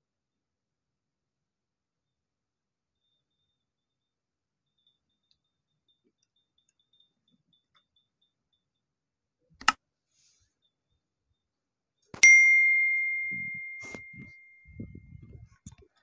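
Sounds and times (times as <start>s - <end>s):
bright bell ding: 12.2s - 15.3s.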